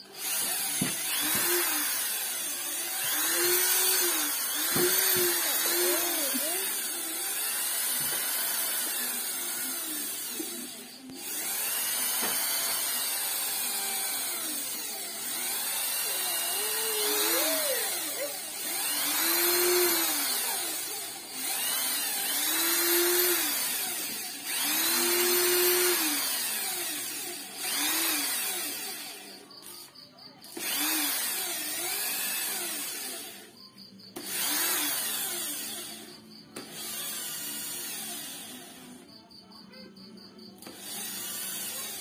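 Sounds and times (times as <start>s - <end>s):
small electric power tool motor: 0.0s - 39.4s, 40.2s - 42.0s.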